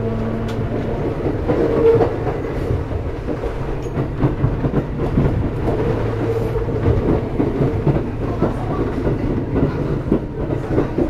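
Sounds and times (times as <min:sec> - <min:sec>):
electric train motor hum: 0:00.0 - 0:03.8
wheels clattering over rails: 0:00.0 - 0:11.0.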